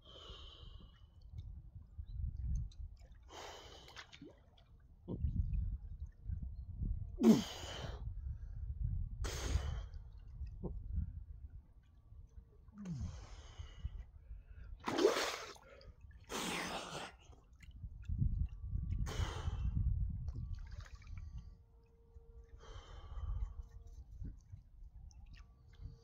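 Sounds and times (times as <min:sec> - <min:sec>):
man breathing heavily and gasping: 0:07.2 - 0:08.1
sea water splashing: 0:14.8 - 0:15.8.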